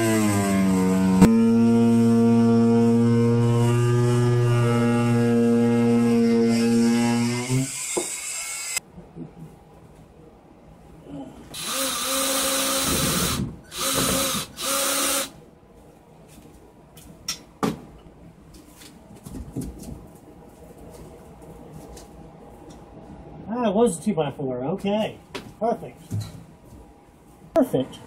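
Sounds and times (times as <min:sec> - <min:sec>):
power tool cutting sheetrock: 0:00.0 - 0:08.8, 0:11.6 - 0:15.3.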